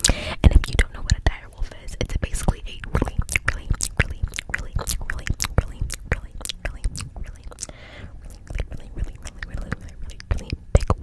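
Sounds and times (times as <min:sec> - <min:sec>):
wet mouth clicks and pops: 0:02.4 - 0:11.0
soft breathy hiss: 0:06.8 - 0:10.3.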